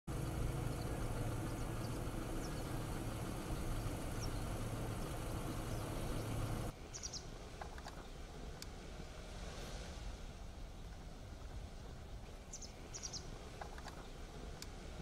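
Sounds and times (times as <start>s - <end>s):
low engine-like hum: 0.1s - 15.0s
outdoor noise: 0.1s - 15.0s
faint high bird chirps: 0.6s - 7.3s, 12.4s - 14.2s.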